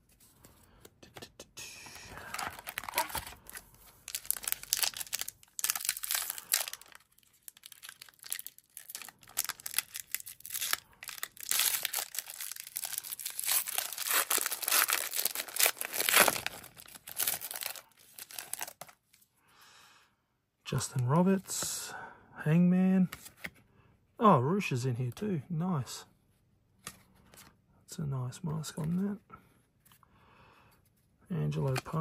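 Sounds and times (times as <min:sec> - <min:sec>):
plastic wrapper tearing and crinkling: 0:02.2 - 0:19.0.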